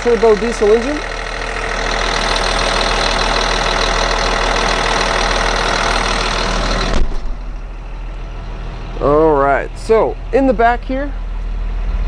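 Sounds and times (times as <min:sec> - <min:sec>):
diesel engine idling: 0:00.0 - 0:12.0
engine cover thump: 0:06.2 - 0:07.8.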